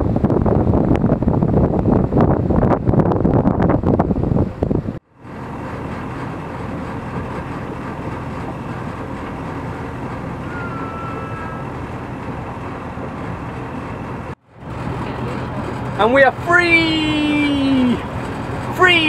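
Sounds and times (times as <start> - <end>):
boat engine running: 0.0 - 19.0
wind buffeting microphone: 0.0 - 19.0
faint high whistle: 10.4 - 11.6.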